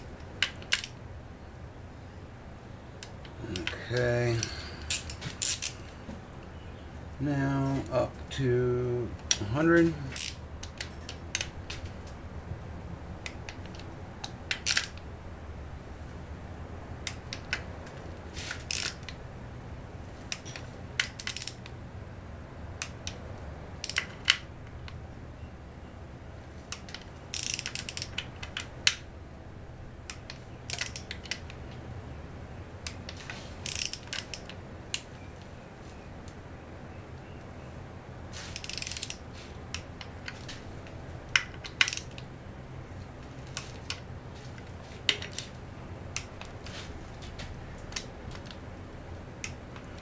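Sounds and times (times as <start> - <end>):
steady low hum: 0.0 - 50.0
torque wrench ratcheting: 18.6 - 19.1, 20.3 - 21.6, 27.3 - 28.3, 30.7 - 31.2, 33.6 - 34.5, 38.5 - 39.2, 41.8 - 42.2.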